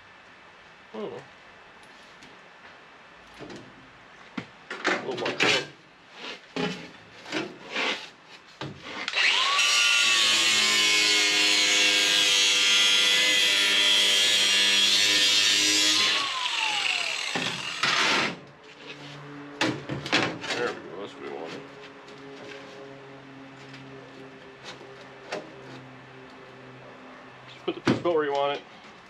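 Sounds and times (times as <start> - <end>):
angle grinder grinding metal: 9.0 - 18.4.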